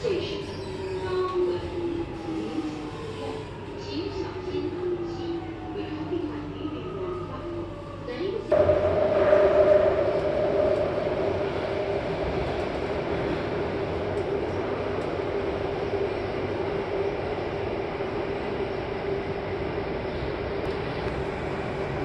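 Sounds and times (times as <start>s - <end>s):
metro train running noise: 0.0s - 22.0s
steady hum: 8.5s - 14.8s.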